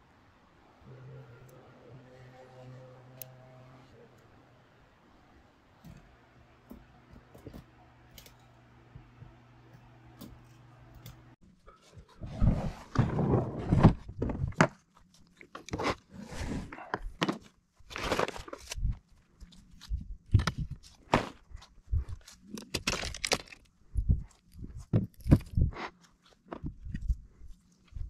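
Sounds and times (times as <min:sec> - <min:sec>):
crunching and knocking noises: 0:12.8 - 0:16.1, 0:16.7 - 0:28.0.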